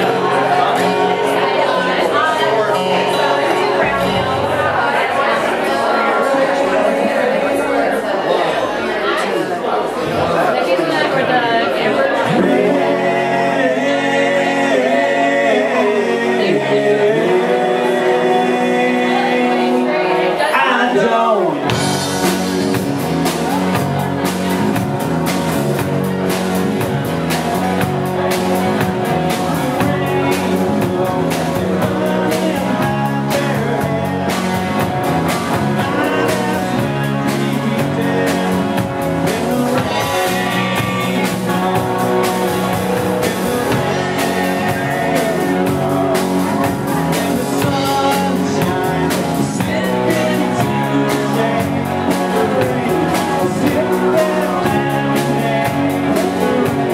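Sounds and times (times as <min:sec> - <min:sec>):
man singing: 0:00.0 - 0:05.0, 0:12.2 - 0:24.3, 0:27.5 - 0:56.9
drum kit steady beat: 0:00.0 - 0:05.3, 0:21.6 - 0:56.9
strummed acoustic guitar: 0:00.0 - 0:07.4, 0:12.2 - 0:56.9
second guitar: 0:00.0 - 0:09.2, 0:10.2 - 0:56.9.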